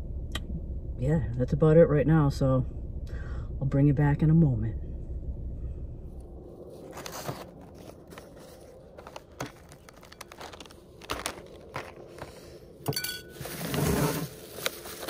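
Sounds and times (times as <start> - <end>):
food packaging crinkling: 6.8 - 12.5, 13.2 - 15.0.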